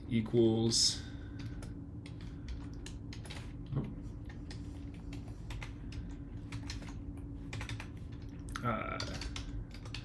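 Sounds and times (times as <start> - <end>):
low steady hum: 0.0 - 10.0
keyboard typing clicks: 4.2 - 10.0.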